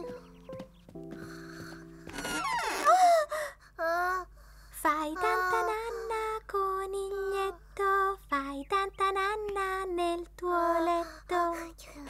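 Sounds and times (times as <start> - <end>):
child singing: 4.8 - 12.0.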